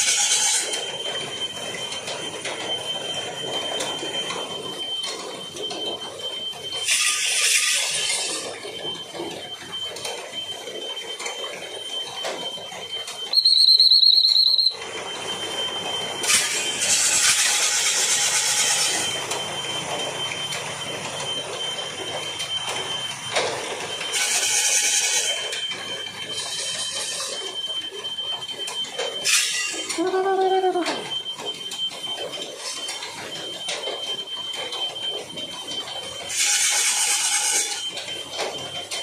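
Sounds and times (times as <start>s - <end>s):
thin steady high tone: 7.8s - 36.3s
pea whistle trilling blast: 13.3s - 14.8s.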